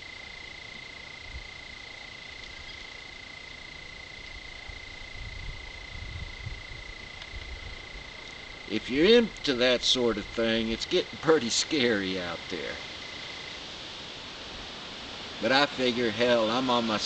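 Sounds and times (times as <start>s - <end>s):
hiss: 11.4s - 17.0s.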